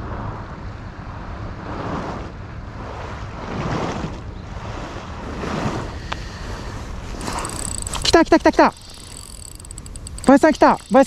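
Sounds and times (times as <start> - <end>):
wind rumbling on microphone: 0.0 - 11.0
waves washing against seawall: 1.7 - 7.4.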